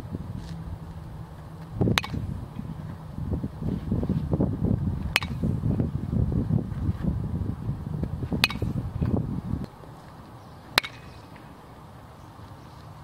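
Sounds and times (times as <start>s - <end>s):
bat hitting baseball: 1.9s - 2.3s, 5.0s - 5.5s, 8.4s - 9.2s, 10.8s - 11.4s.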